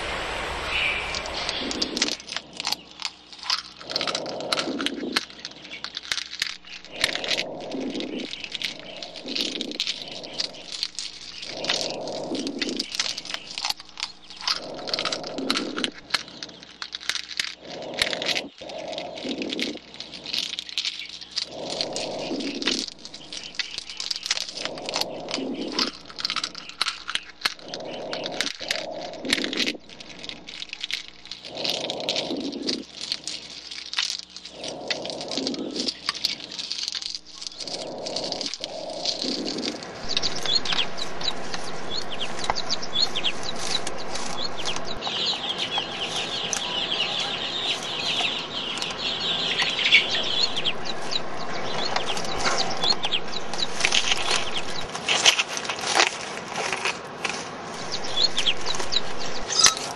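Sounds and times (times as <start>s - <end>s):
muffled low rushing: 0.0s - 2.3s, 37.7s - 47.6s, 48.3s - 54.9s, 57.8s - 59.5s
low sound: 0.0s - 3.1s, 37.4s - 45.1s
rapid irregular clicking and crackling: 0.0s - 59.9s.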